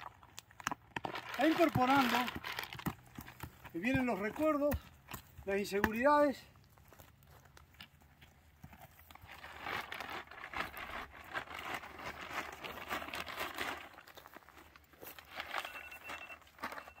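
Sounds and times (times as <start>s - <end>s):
plastic bag rustling: 1.0s - 3.0s, 9.0s - 17.0s.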